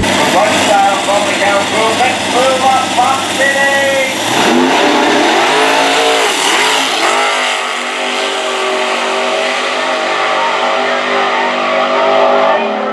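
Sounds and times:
racing engines accelerating: 0:00.0 - 0:12.9.

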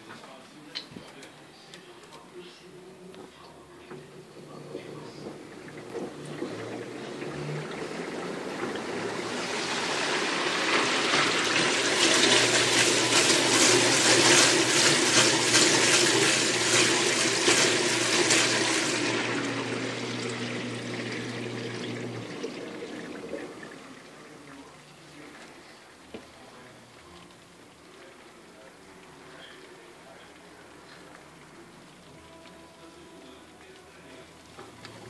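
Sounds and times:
water sloshing in washing machine: 0:03.9 - 0:24.5
low motor hum: 0:04.2 - 0:10.0, 0:16.4 - 0:23.9.

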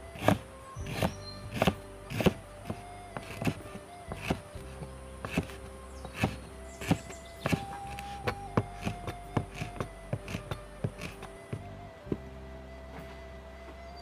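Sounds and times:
knife chopping on wooden board: 0:00.2 - 0:04.4, 0:05.2 - 0:05.6, 0:06.2 - 0:11.2.

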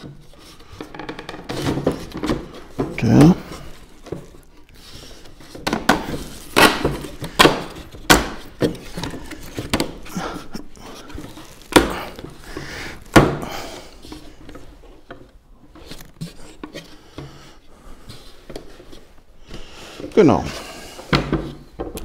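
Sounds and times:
wooden knocks and clicks: 0:21.1 - 0:22.0.

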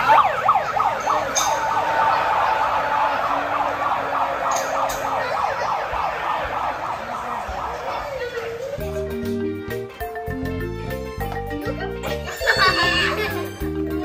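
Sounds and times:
megaphone siren sweeping: 0:00.0 - 0:08.6.

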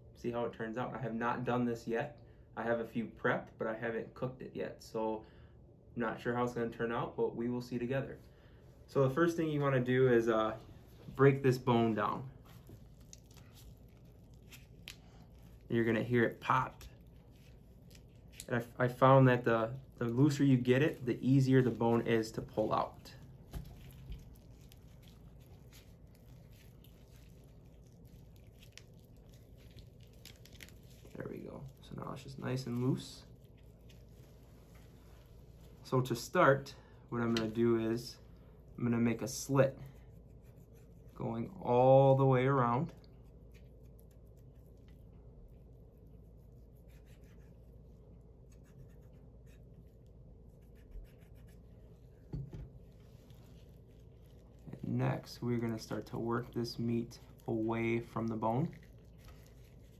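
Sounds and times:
wet squishing of chicken wing: 0:12.4 - 0:19.0, 0:19.6 - 0:35.0, 0:49.0 - 0:59.9
knife scratching through chicken: 0:46.2 - 0:47.8, 0:53.3 - 0:59.9
soft knock: 0:52.3 - 0:52.8.

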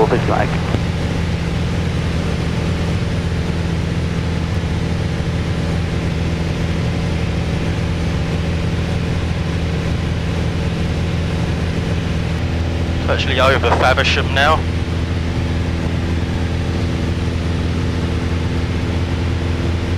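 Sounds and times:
propeller aircraft engine drone: 0:00.0 - 0:19.9.

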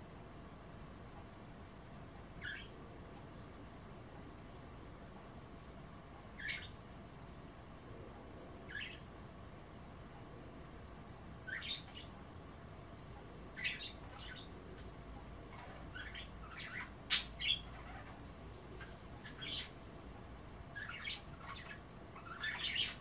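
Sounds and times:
budgerigars chirping: 0:02.4 - 0:02.7, 0:06.4 - 0:06.7, 0:08.7 - 0:09.0, 0:11.5 - 0:12.1, 0:13.6 - 0:14.5, 0:15.5 - 0:18.2, 0:18.8 - 0:19.8, 0:20.8 - 0:23.0.

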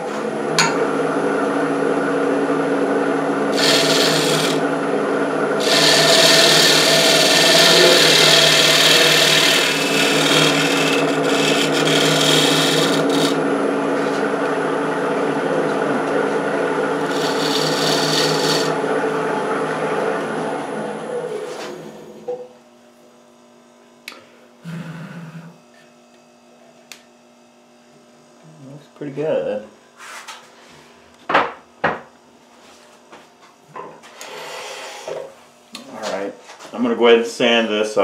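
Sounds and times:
wood lathe motor running: 0:00.2 - 0:22.2
sandpaper rasping on spinning wood: 0:03.5 - 0:04.6, 0:05.6 - 0:13.4, 0:17.0 - 0:18.8.

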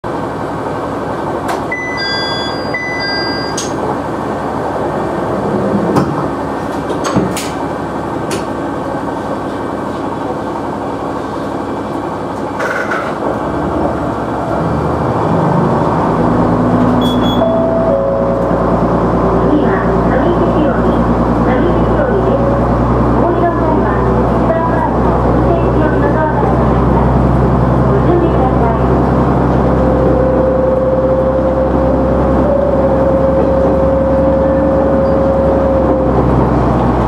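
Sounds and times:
diesel railcar engine: 0:00.0 - 0:37.0
short beeps: 0:01.7 - 0:03.8, 0:17.0 - 0:18.4.

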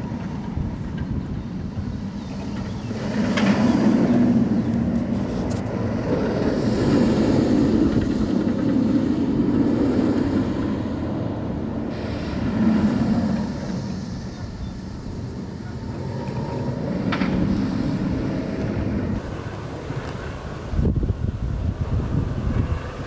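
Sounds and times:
roller coaster rumbling on track: 0:00.0 - 0:23.0.

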